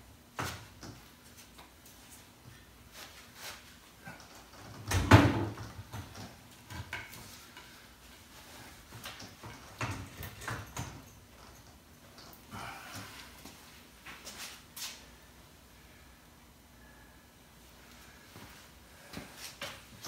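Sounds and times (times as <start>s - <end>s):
metal knocks and clinks: 9.5s - 12.4s.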